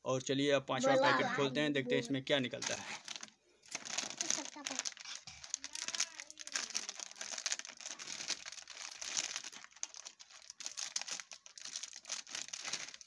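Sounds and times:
plastic packet crinkling: 0:02.6 - 0:13.0.

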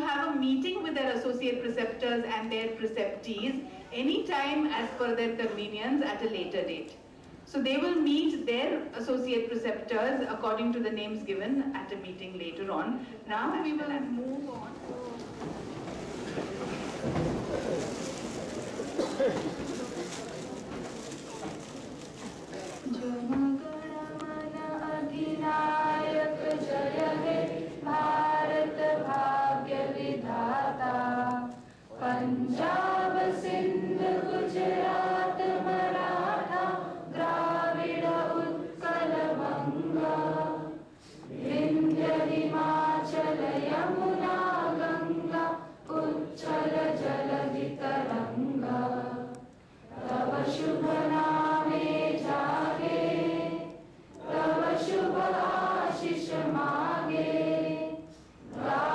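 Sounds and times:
woman singing into a microphone: 0:22.9 - 0:26.4.

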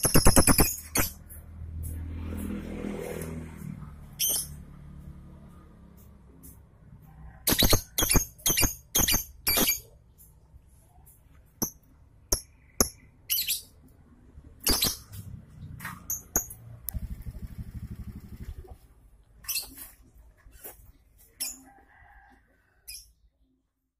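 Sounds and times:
bird chirping shrilly: 0:00.0 - 0:01.2, 0:04.2 - 0:04.6, 0:07.5 - 0:10.0, 0:12.4 - 0:13.8, 0:14.6 - 0:15.2.

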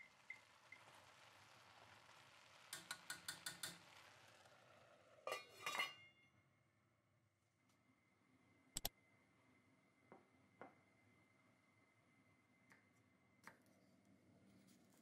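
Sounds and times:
metallic clanks of lid on pot: 0:05.2 - 0:06.1
pot lid clinking: 0:05.2 - 0:06.1.

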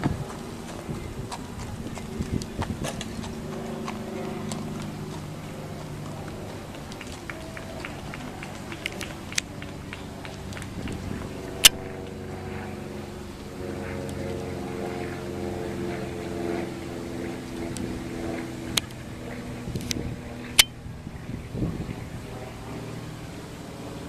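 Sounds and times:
engine running: 0:00.0 - 0:24.0.

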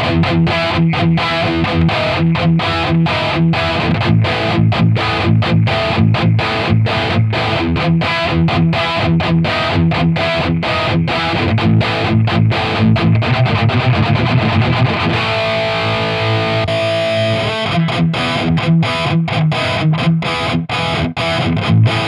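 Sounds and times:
distorted electric guitar chords: 0:00.0 - 0:22.0.

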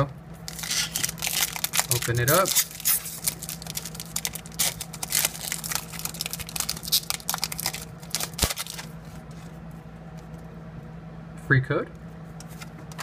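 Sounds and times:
foil wrapper crinkling and tearing: 0:00.5 - 0:09.0.

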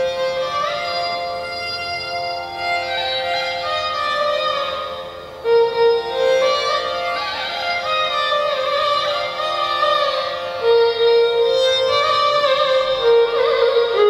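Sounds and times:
steady drone: 0:00.0 - 0:14.0.

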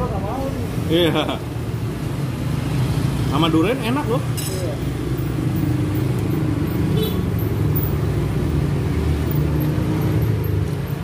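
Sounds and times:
traffic engine rumble: 0:00.0 - 0:11.0.

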